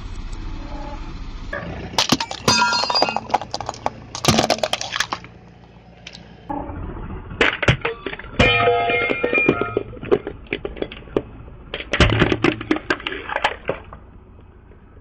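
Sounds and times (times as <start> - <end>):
low rumble: 0.0 - 15.0
light bulbs shattering under tyre: 2.0 - 5.3.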